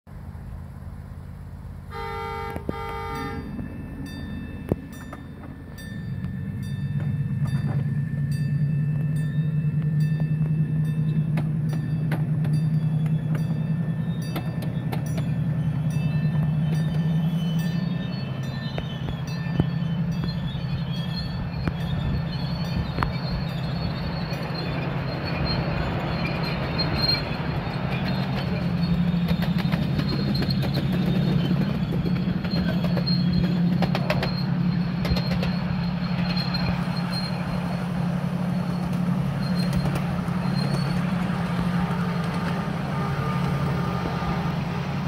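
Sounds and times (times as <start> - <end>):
locomotive drive humming: 0.1 - 45.0
locomotive horn blasts: 1.9 - 3.6, 40.6 - 45.0
wheels clicking over track: 9.8 - 45.0.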